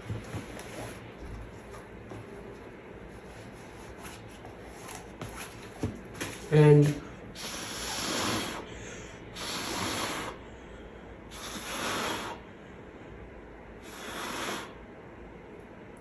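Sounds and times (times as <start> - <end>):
person blowing breath: 7.4 - 12.5, 13.8 - 14.8.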